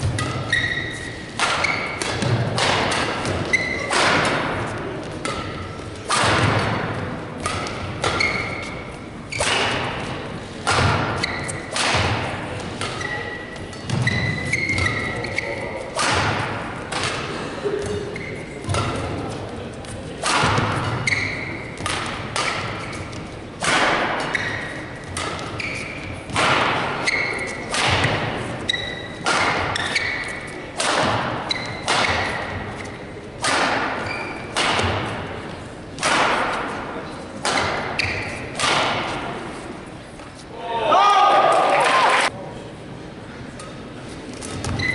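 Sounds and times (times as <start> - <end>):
shoes squeaking on court: 0.0 - 6.8, 7.4 - 10.2, 11.0 - 11.8, 12.6 - 15.9, 17.8 - 20.0, 20.6 - 23.4, 24.2 - 27.8, 28.4 - 30.6, 31.4 - 33.1, 34.0 - 35.1, 37.6 - 40.5, 43.6 - 44.9
rackets hitting shuttlecock: 0.0 - 39.8, 43.6 - 44.9.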